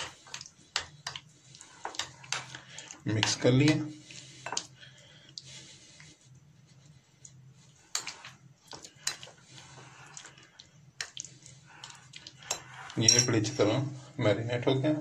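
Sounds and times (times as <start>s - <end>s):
spoon stirring food in bowl: 0.0s - 4.8s, 7.2s - 13.7s
spoon clinking on glass: 12.5s - 13.5s.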